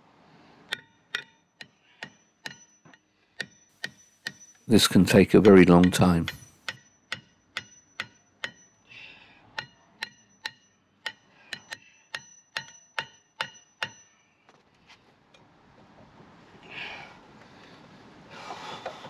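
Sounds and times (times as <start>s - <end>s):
hammer striking brake disc: 0.7s - 4.7s, 5.4s - 8.8s, 9.6s - 14.3s.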